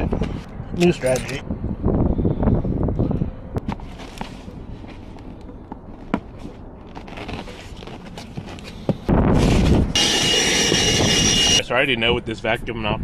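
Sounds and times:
vacuum cleaner running: 10.0 - 11.6.

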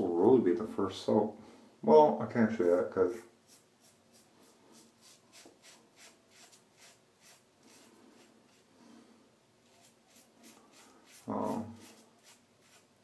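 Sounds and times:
razor scraping stubble: 3.4 - 8.7, 9.6 - 13.0.

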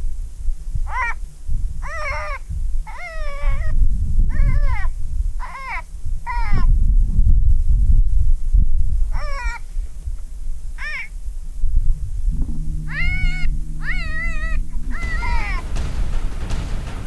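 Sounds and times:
low steady hum: 0.0 - 17.0
high wavering animal-like cries: 1.8 - 6.6
steady low rumble: 9.8 - 17.0.

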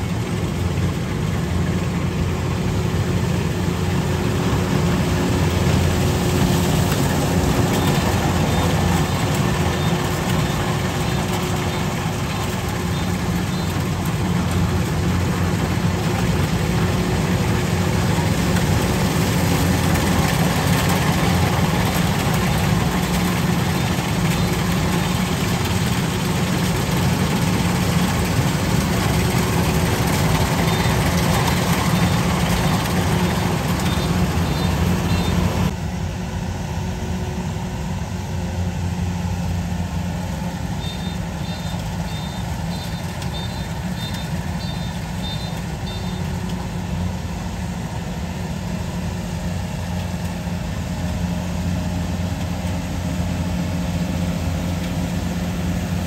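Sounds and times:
combine harvester diesel engine: 0.0 - 56.0.

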